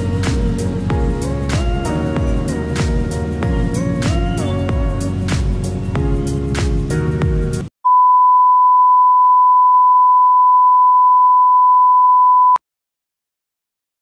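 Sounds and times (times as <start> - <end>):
background music with beat: 0.0 - 7.7
steady high test tone beep: 7.8 - 12.6.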